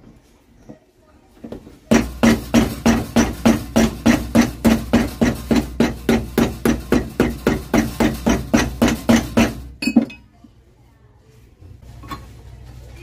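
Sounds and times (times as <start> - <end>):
hammer striking shoe heel: 1.9 - 9.7.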